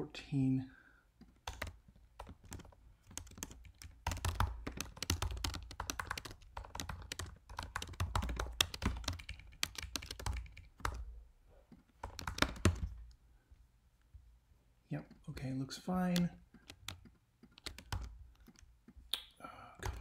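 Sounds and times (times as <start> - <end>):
fast keyboard typing: 1.2 - 11.0, 11.8 - 13.2, 16.1 - 18.7, 19.8 - 20.0.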